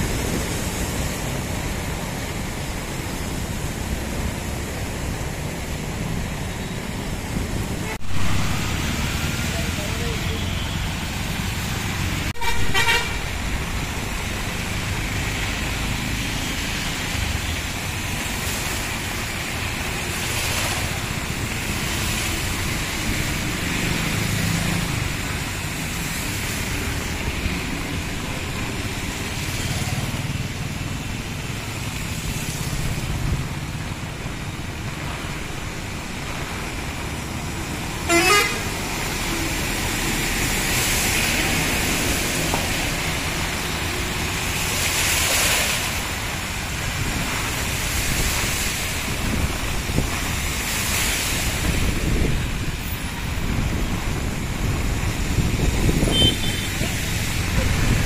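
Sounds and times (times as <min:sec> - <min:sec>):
heavy rain: 0:00.0 - 0:58.0
tyres splashing through water: 0:00.0 - 0:58.0
vehicle horn toots: 0:12.4 - 0:13.2, 0:38.1 - 0:38.7, 0:56.1 - 0:56.7.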